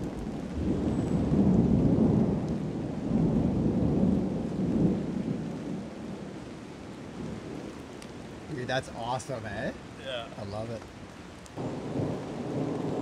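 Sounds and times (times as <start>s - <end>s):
rolling thunder: 0.0s - 6.2s, 11.6s - 13.0s
steady rain: 0.0s - 13.0s.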